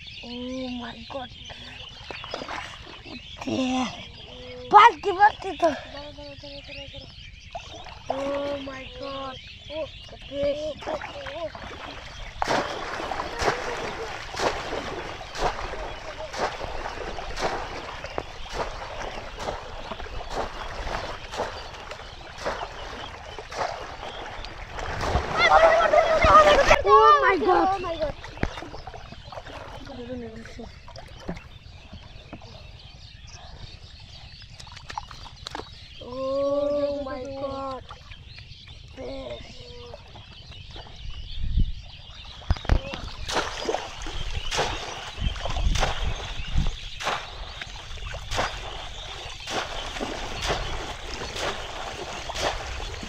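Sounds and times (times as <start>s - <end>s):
basket splashing in water: 10.8s - 29.9s, 42.6s - 53.0s
water pouring off basket: 12.4s - 26.7s, 47.0s - 53.0s.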